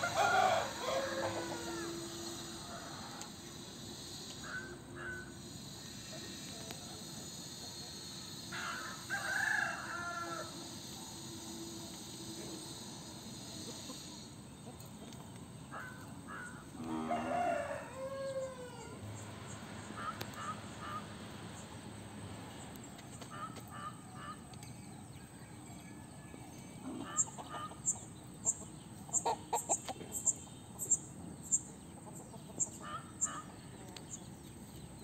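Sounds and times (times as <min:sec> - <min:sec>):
rooster crowing: 0:00.0 - 0:03.3, 0:08.5 - 0:10.9, 0:16.7 - 0:19.2
chicken clucks: 0:26.8 - 0:30.9, 0:31.9 - 0:34.0.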